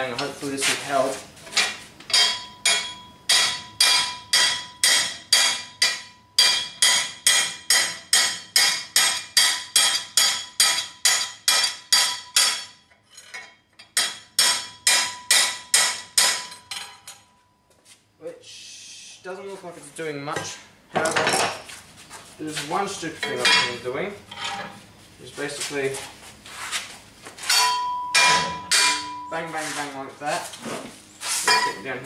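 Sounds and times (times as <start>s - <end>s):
hammer clanging on steel plate: 1.6s - 12.8s, 13.8s - 17.3s, 27.5s - 29.3s, 31.5s - 31.8s.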